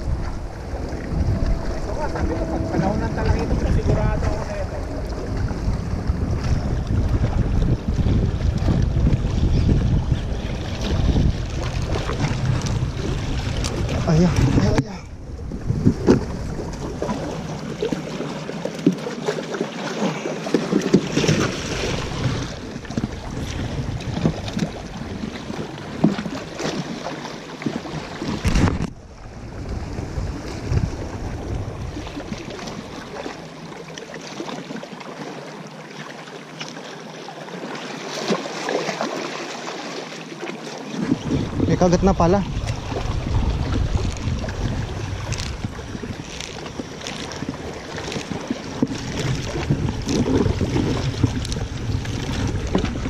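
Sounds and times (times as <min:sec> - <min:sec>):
wind buffeting microphone: 0:00.0 - 0:18.2, 0:20.8 - 0:26.4, 0:28.0 - 0:33.2, 0:41.0 - 0:53.0
water washing against rocks: 0:37.5 - 0:53.0.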